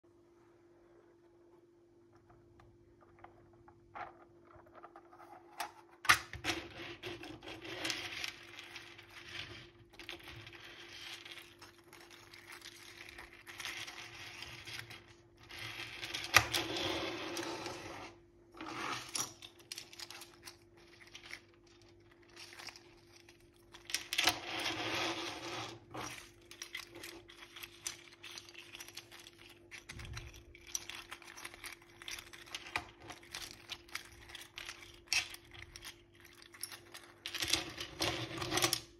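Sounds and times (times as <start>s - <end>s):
faint steady hum: 0.0s - 38.9s
plastic figures clicking and rattling: 6.1s - 16.7s, 19.1s - 24.7s, 26.0s - 38.9s.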